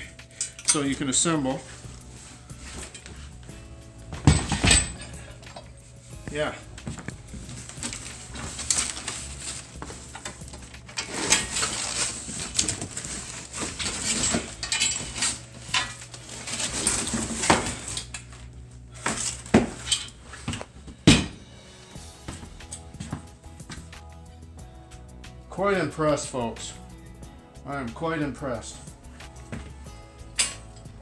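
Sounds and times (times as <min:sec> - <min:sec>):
metal clanking: 0:04.1 - 0:05.7, 0:10.0 - 0:18.2
cardboard and plastic rustling: 0:06.3 - 0:21.0.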